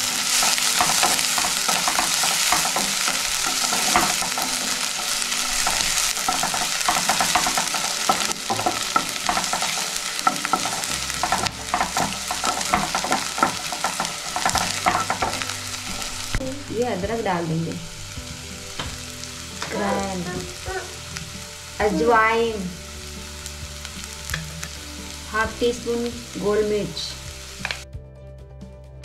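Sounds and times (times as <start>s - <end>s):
utensil scraping and tapping pan: 0.0s - 16.2s
onions sizzling in oil: 0.0s - 27.8s.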